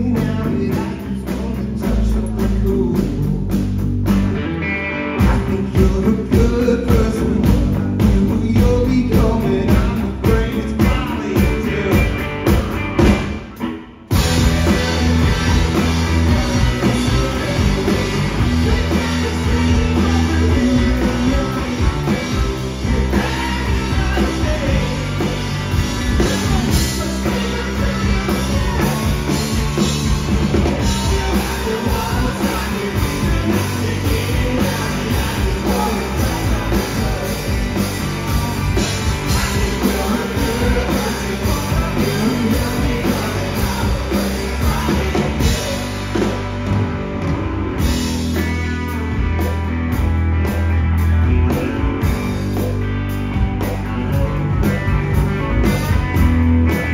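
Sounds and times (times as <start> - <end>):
lead vocal singing: 0.0 - 3.7, 5.2 - 46.8
drum kit: 0.0 - 56.9
electric bass: 0.0 - 56.9
electric guitar: 0.0 - 56.9.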